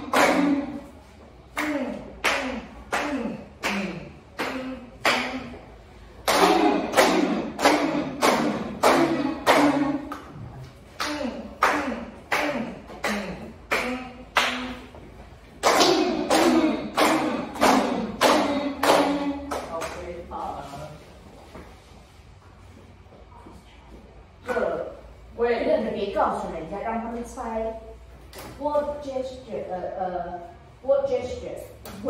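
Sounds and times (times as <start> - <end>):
people clapping in rhythm: 0.0 - 20.2.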